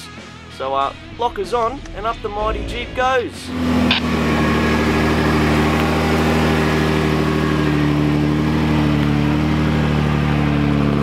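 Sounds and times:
car engine running under load: 0:02.9 - 0:11.0.

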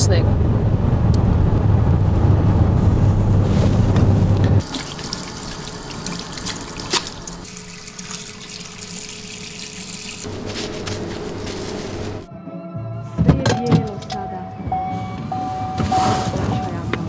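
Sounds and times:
car cabin rumble: 0:00.0 - 0:04.6, 0:13.2 - 0:17.0.

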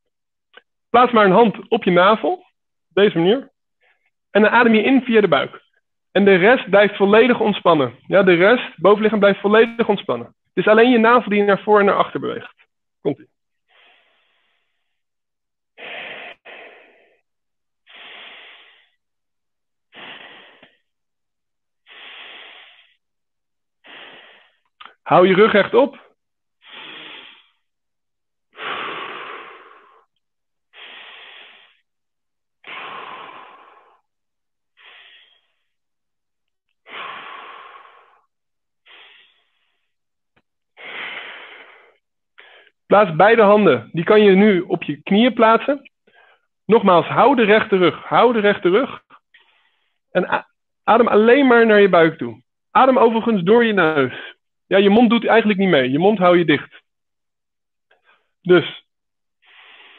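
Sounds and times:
man breathing deeply: 0:13.6 - 0:15.1, 0:15.8 - 0:19.1, 0:19.9 - 0:20.9, 0:21.8 - 0:23.1, 0:23.8 - 0:25.0, 0:26.6 - 0:27.7, 0:28.5 - 0:32.0, 0:32.6 - 0:34.1, 0:34.7 - 0:35.8, 0:36.8 - 0:40.0, 0:40.8 - 0:42.8, 0:49.1 - 0:50.1, 0:59.4 - 0:59.9.

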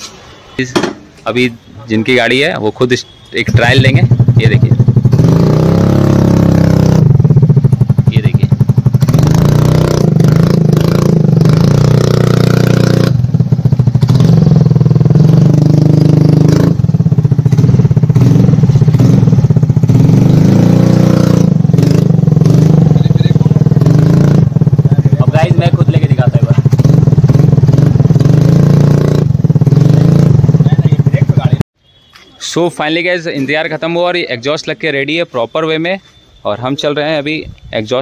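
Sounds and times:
scooter engine running loud: 0:03.9 - 0:31.6.

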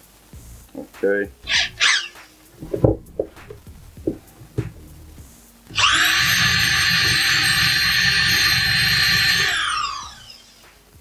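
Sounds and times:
electric drill whining: 0:05.7 - 0:10.6.

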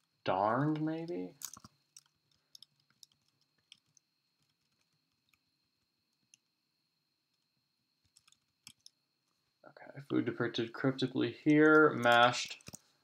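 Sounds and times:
faint steady high whine: 0:00.0 - 0:13.0
computer mouse and keyboard clicks: 0:08.0 - 0:09.0.

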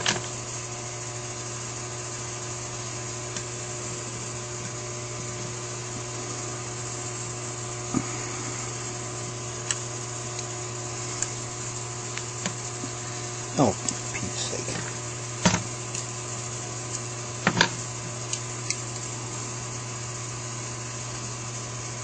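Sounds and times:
low motor hum: 0:00.0 - 0:22.0.

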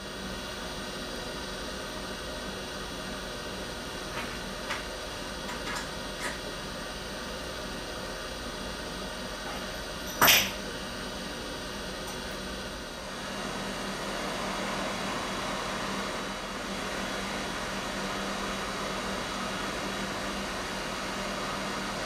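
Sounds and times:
hot-air station blowing hiss: 0:12.9 - 0:22.0.

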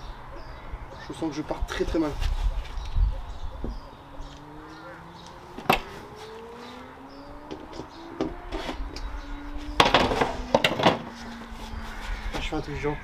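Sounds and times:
faint hum rising in pitch: 0:03.8 - 0:12.0
wooden board knocks and clatter: 0:09.8 - 0:11.1.

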